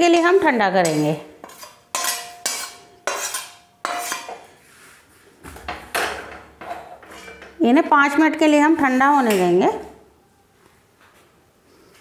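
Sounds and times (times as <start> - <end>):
metal ladle scraping a pan: 0.3 - 4.8, 6.6 - 7.6, 8.9 - 9.6.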